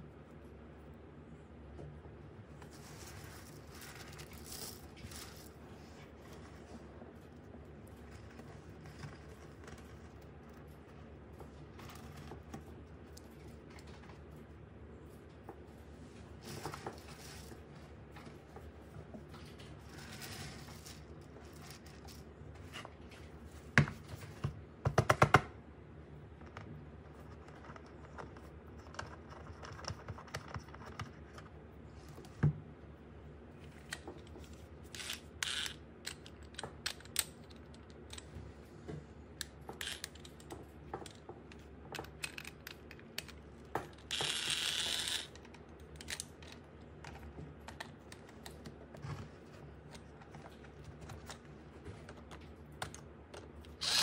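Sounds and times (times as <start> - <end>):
rustling scrape: 2.6 - 10.2, 15.9 - 18.4, 19.3 - 23.6.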